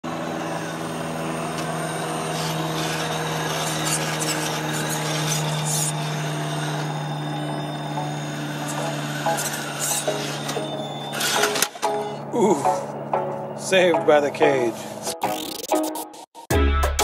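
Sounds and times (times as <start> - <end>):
toy truck electric motor whine: 0.0 - 13.1.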